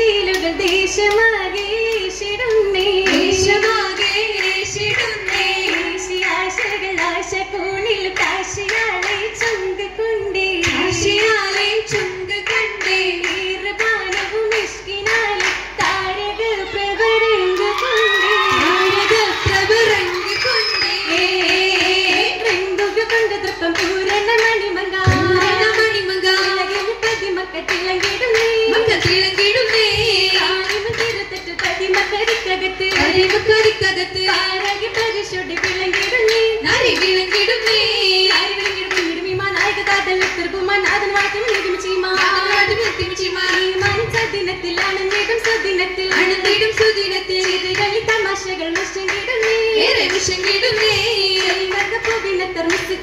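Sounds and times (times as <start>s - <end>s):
hand claps: 0.2s - 9.7s, 10.6s - 16.0s, 17.5s - 53.0s
group singing: 2.7s - 7.1s, 15.2s - 33.4s.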